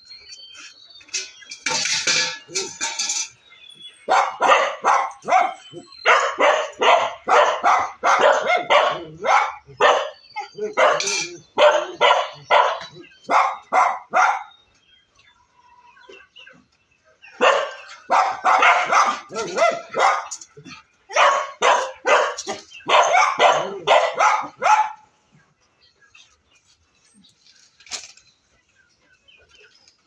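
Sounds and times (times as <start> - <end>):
dogs barking: 4.0 - 14.6, 17.3 - 25.1.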